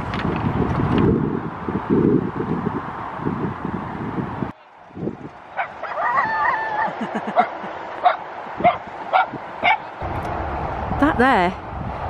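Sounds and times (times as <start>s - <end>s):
dog barking: 5.6s - 6.2s, 7.4s - 9.9s.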